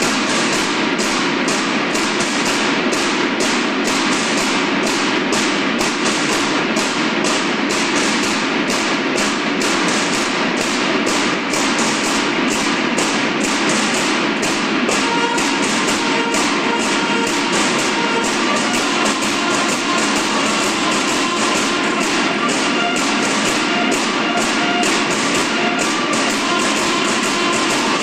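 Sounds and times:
snare drums marching cadence: 0.0s - 28.0s
bugles playing: 14.3s - 28.0s.

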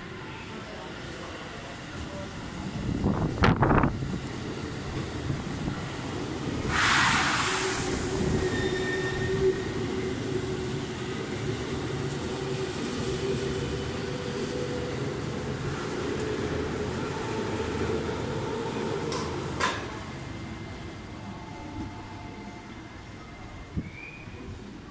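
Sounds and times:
train wheels rumbling on rails: 0.7s - 22.4s
burst of hiss: 6.6s - 8.5s.

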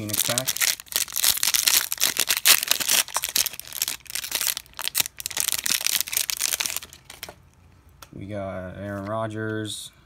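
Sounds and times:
foil wrapper tearing and crinkling: 0.0s - 7.3s.

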